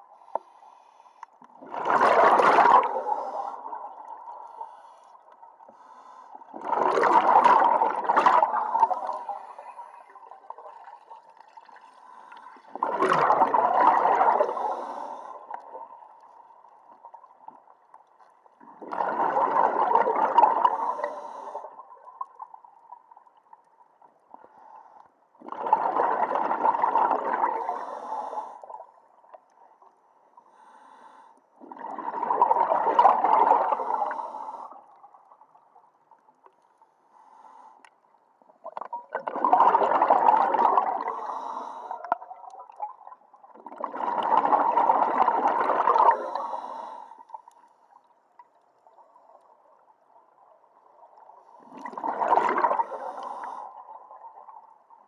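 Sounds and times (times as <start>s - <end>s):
exhaled bubbles underwater: 1.5s - 4.8s, 6.5s - 17.8s, 18.5s - 23.2s, 25.4s - 29.6s, 31.6s - 35.8s, 38.5s - 55.0s.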